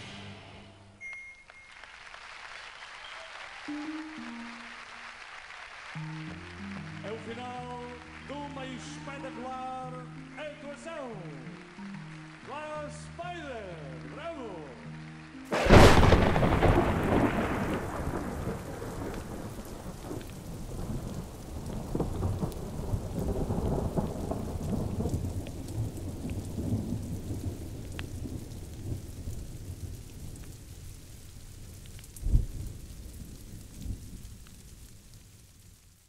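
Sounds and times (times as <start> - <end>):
steady rain: 1.4 - 36.0
thunder clap and rumble: 15.5 - 35.7.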